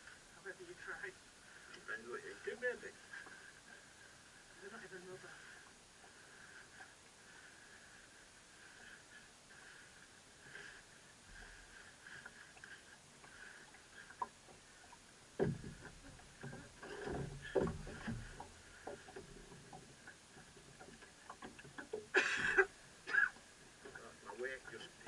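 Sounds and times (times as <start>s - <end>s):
water lapping against hull: 0.0s - 25.0s
gear knocking inside a boat: 15.3s - 22.1s.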